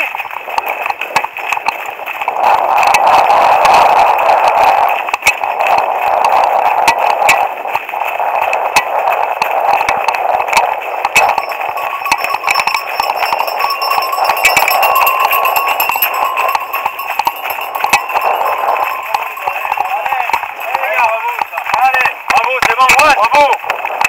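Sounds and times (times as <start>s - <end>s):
wind noise: 1.8s - 22.2s
faint ringing tones: 11.2s - 22.0s.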